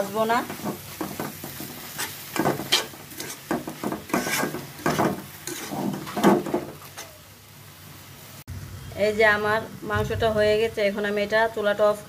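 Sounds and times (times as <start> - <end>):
metal spatula scraping a pan: 0.4 - 7.2.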